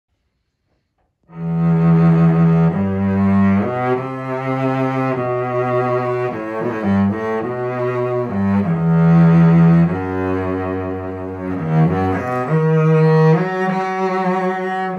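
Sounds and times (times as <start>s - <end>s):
bowed cello: 1.2s - 14.9s.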